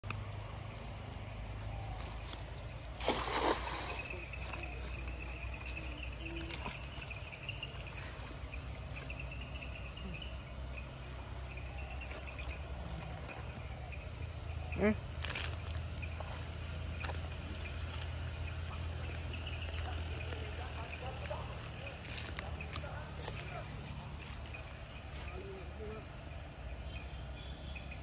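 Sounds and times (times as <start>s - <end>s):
insects trilling: 0.1s - 28.0s
cast net splashing into water: 2.9s - 4.4s.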